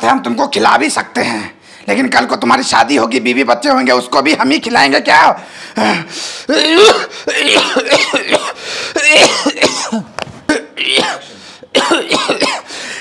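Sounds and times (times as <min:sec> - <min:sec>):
man coughing: 0:05.8 - 0:13.0
throat clearing: 0:05.9 - 0:12.7.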